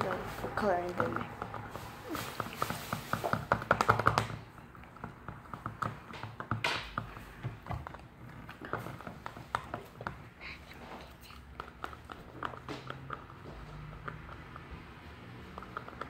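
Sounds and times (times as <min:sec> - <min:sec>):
plastic stick tapping a cup: 0:02.9 - 0:10.2.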